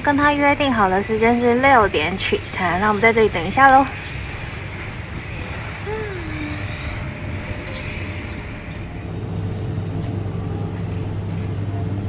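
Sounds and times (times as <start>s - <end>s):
low hum: 0.0s - 12.0s
low rumbling background noise: 0.0s - 12.0s
faint clicks: 4.8s - 5.3s, 7.4s - 7.8s.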